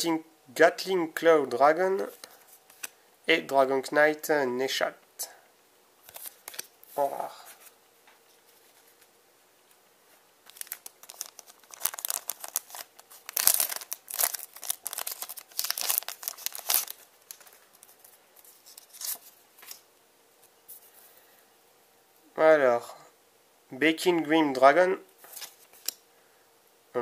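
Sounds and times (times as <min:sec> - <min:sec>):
foil pack crinkling and tearing: 0:10.4 - 0:19.3.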